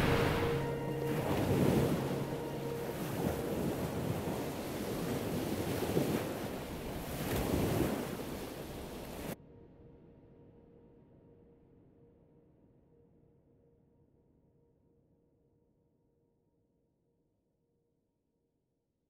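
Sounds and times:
waves washing in and out: 0.0 - 9.4.

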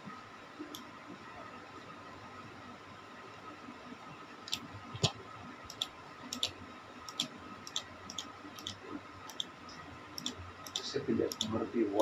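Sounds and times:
faint steady hum: 0.0 - 12.0
computer mouse clicking: 4.5 - 5.1, 5.7 - 9.6, 10.2 - 11.6.

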